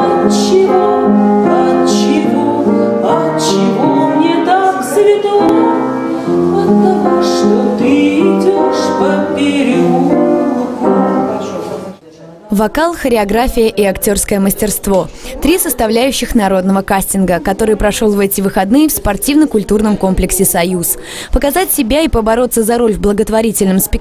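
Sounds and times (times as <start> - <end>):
woman singing: 0.0 - 10.9
piano: 0.0 - 12.0.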